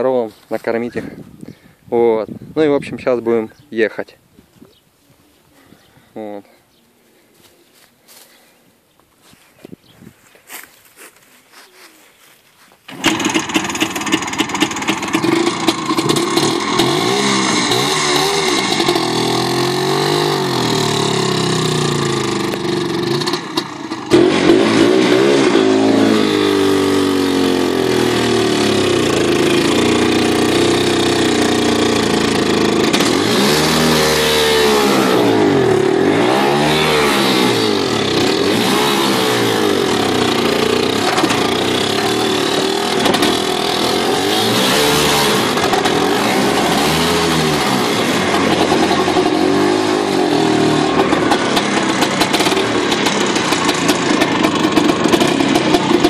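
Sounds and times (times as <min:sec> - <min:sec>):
two-stroke motorcycle engine running: 0:12.9 - 0:56.0.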